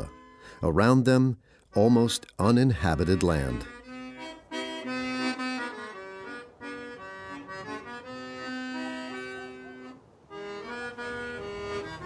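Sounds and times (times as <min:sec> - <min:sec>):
slow melody of held notes: 0:03.1 - 0:12.0.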